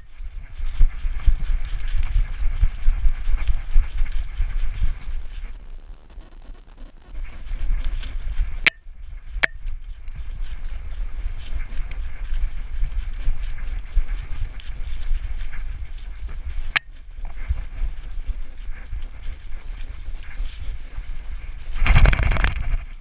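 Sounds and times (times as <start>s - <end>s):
paws pattering through dry leaves: 0.0s - 23.0s
wind buffeting camera: 0.0s - 23.0s
sharp clicks: 21.8s - 22.9s.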